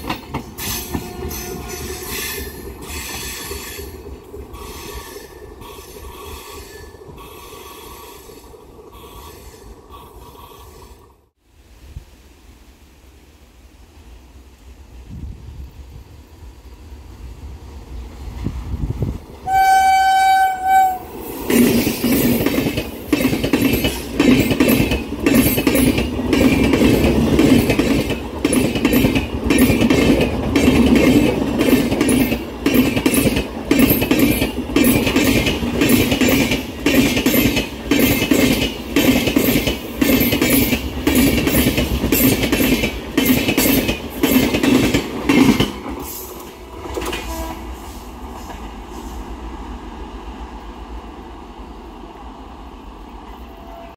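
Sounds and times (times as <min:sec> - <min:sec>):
locomotive horn blast: 0:19.4 - 0:21.2, 0:47.2 - 0:47.8
train wheels clattering over rail joints: 0:21.5 - 0:47.4.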